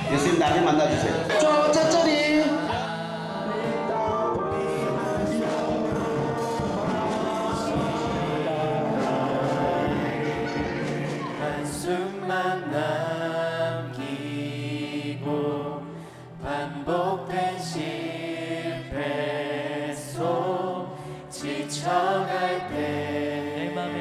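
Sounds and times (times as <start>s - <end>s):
instrumental accompaniment: 0.0s - 15.5s
worship song singing: 0.0s - 24.0s.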